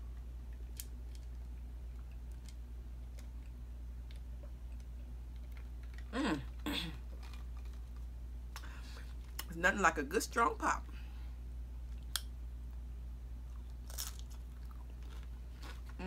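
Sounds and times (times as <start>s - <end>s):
steady low hum: 0.0s - 16.0s
person sighing ahh: 6.1s - 7.0s.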